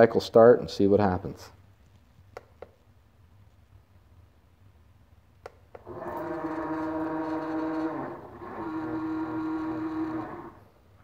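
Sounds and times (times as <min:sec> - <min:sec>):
stepper motors whining: 0:05.8 - 0:10.6.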